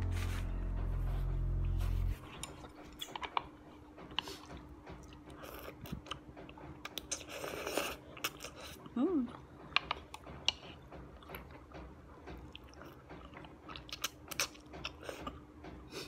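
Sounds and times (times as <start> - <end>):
background music: 0.0 - 2.4
chewing noodles: 4.1 - 11.7, 12.4 - 15.9
slurping noodles: 7.1 - 8.8.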